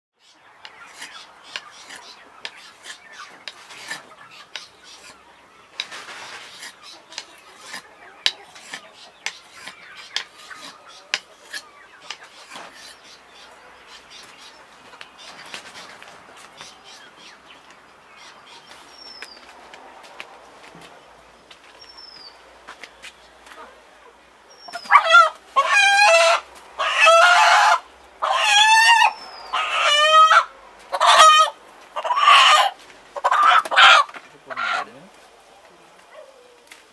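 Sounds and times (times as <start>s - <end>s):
bird chirp: 0.2s - 25.6s, 29.0s - 32.2s.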